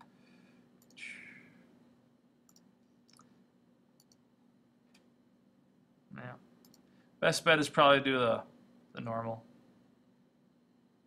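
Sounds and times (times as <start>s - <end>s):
faint low hum: 0.0s - 11.0s
computer mouse clicks: 2.5s - 3.3s, 4.0s - 4.2s, 6.6s - 6.9s.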